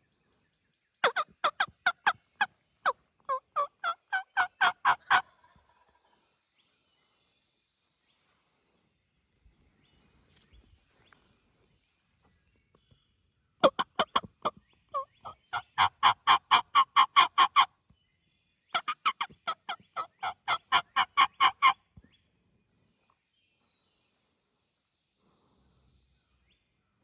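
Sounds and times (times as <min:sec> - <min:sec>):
turkey calling: 0:01.0 - 0:05.5, 0:13.6 - 0:17.7, 0:18.7 - 0:21.8.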